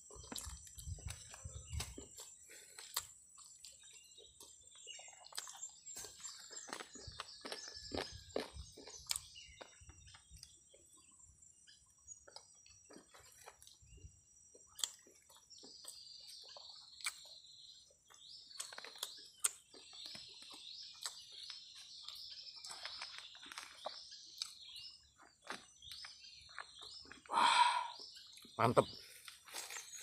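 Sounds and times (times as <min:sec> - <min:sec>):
eating clicks and smacks: 0:02.8 - 0:10.6, 0:14.6 - 0:17.4, 0:18.4 - 0:27.3
falling chirp calls: 0:14.7 - 0:30.0.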